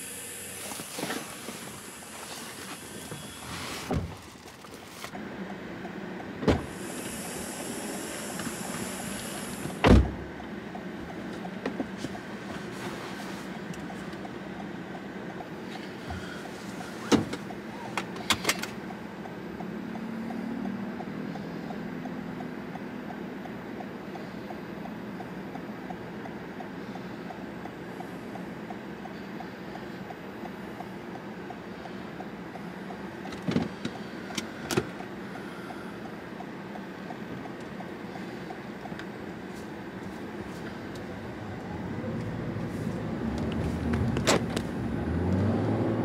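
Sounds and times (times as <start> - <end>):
steady low hum: 0.0 - 45.1
hiss: 6.7 - 9.8.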